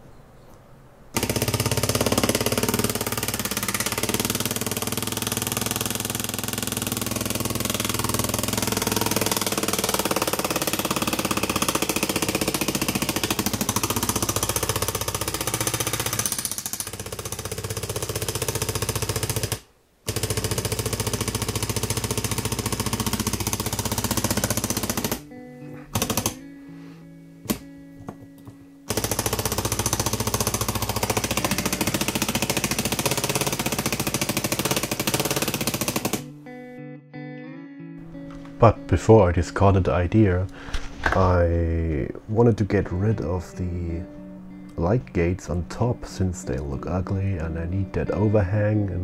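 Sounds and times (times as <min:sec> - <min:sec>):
solenoid engine rattling: 0:01.2 - 0:25.2, 0:28.9 - 0:36.2.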